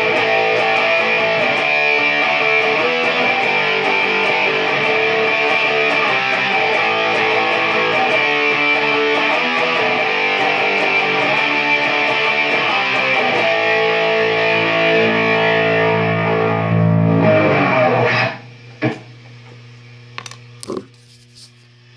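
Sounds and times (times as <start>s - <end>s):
distorted electric guitar chords: 0.0s - 19.0s
amplifier hum: 14.6s - 21.9s.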